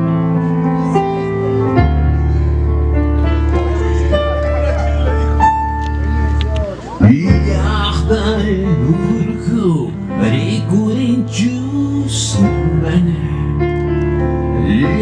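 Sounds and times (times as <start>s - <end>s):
guitar: 0.0s - 15.0s
keyboard: 0.0s - 15.0s
man singing: 7.0s - 13.8s, 14.5s - 15.0s.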